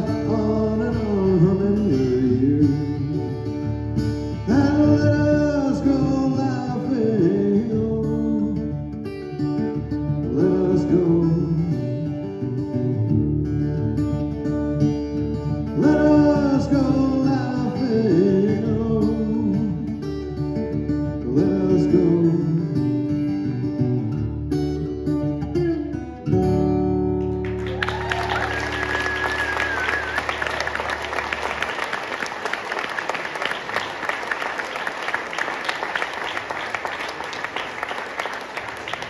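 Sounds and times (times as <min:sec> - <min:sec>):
man singing: 0:00.0 - 0:03.6, 0:04.3 - 0:08.8, 0:10.2 - 0:12.2, 0:15.7 - 0:20.3, 0:21.1 - 0:23.1
acoustic guitar: 0:00.0 - 0:39.0
audience applause: 0:27.2 - 0:39.0
whistle from crowd: 0:27.6 - 0:31.8.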